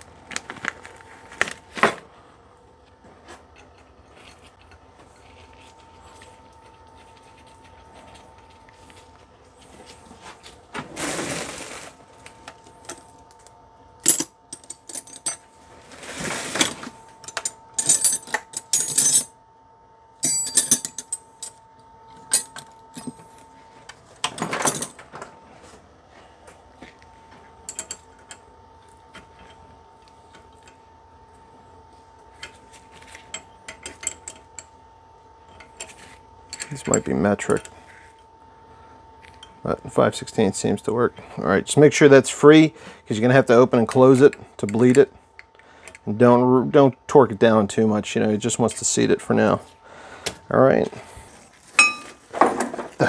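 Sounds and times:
metal parts clinking: 0:14.0 - 0:15.5, 0:16.6 - 0:19.3, 0:20.2 - 0:21.6, 0:22.2 - 0:23.4, 0:24.2 - 0:25.0, 0:27.7 - 0:28.4.

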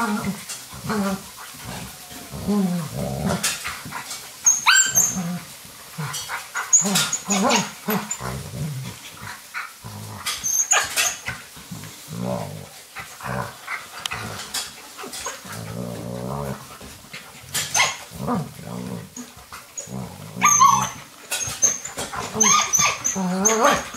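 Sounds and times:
dogs play growling: 0:00.0 - 0:23.9
dog yelping: 0:04.4 - 0:05.3, 0:06.6 - 0:08.2, 0:10.4 - 0:11.2, 0:17.7 - 0:18.0, 0:19.8 - 0:23.9.

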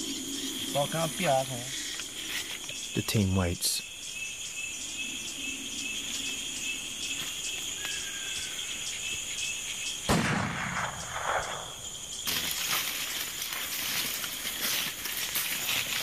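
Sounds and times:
insects chirping: 0:00.0 - 0:16.0
loud gunshot: 0:10.1 - 0:11.8.

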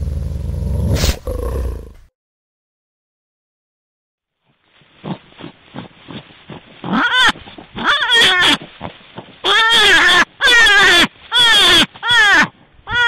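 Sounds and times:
hare squealing: 0:06.8 - 0:08.7, 0:09.4 - 0:13.0.

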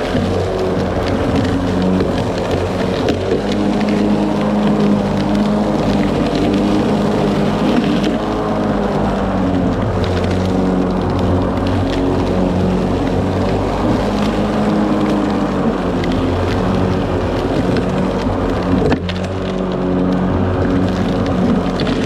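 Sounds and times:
debris ticking: 0:00.0 - 0:22.0
lawn mower humming: 0:00.0 - 0:22.0.

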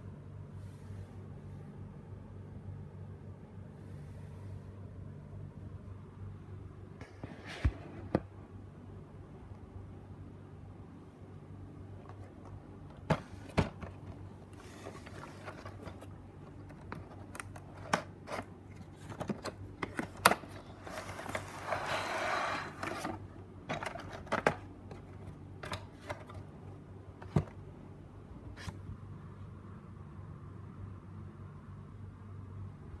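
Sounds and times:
plastic tray sliding scrape: 0:20.5 - 0:24.6.

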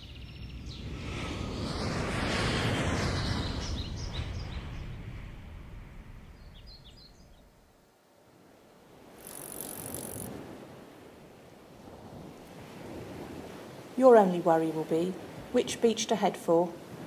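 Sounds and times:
aeroplane engine: 0:00.0 - 0:07.1.

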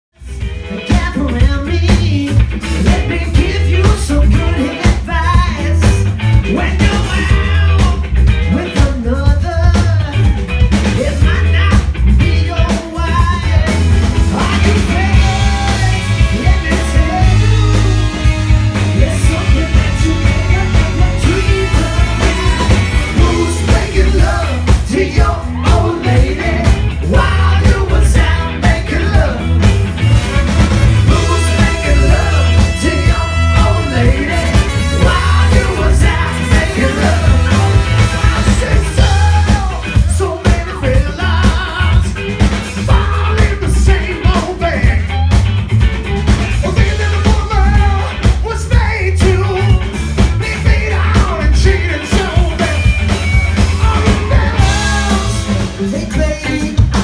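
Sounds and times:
man singing lead: 0:00.2 - 0:29.7, 0:30.9 - 0:45.3, 0:46.5 - 0:57.0
live rock band playing: 0:00.2 - 0:57.0
horn section: 0:13.5 - 0:42.0, 0:50.7 - 0:57.0.

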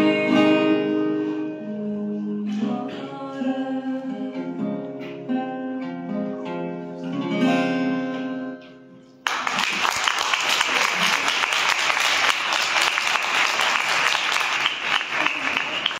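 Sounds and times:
acoustic guitar playing: 0:00.0 - 0:09.2
audience applauding: 0:09.2 - 0:15.9.

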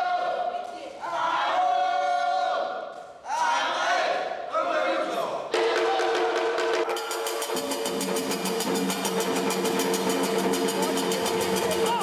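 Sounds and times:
wooden hand drums fast beat: 0:05.5 - 0:12.0.

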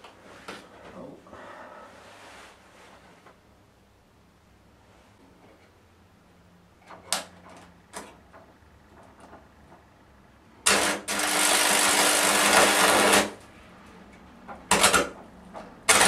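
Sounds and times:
electrical arc snaps: 0:10.6 - 0:13.4, 0:14.7 - 0:15.2
loud electrical buzz: 0:10.6 - 0:13.5, 0:14.7 - 0:15.2.

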